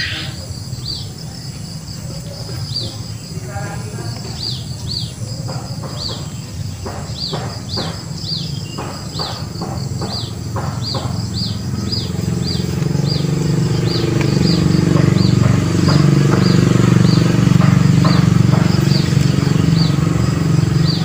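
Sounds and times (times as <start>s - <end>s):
high falling chirp: 0.0s - 1.2s.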